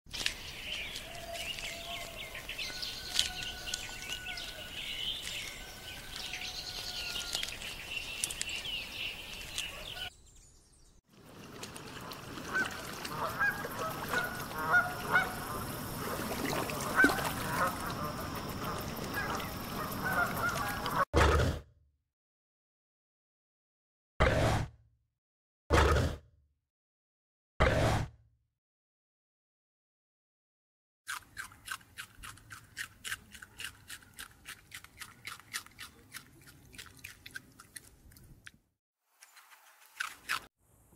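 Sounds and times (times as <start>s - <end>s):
birds chirping: 0.2s - 11.0s, 11.8s - 21.0s
swans honking: 11.8s - 21.0s.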